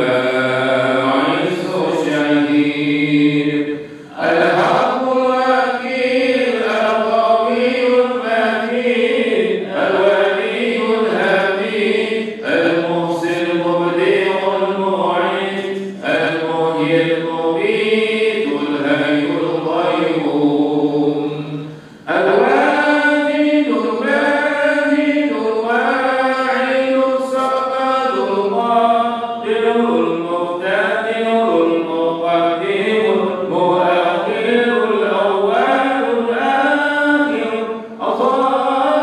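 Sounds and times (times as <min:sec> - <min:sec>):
man chanting melodically: 0:00.0 - 0:39.0.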